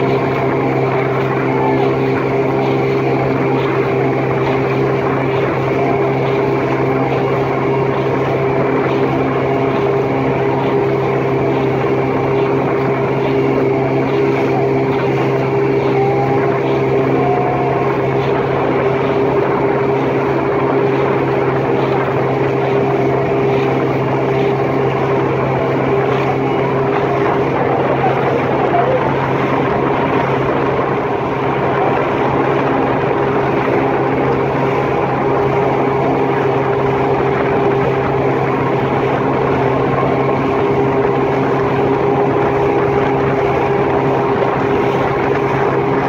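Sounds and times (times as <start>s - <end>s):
boat motor running: 0.0s - 46.0s.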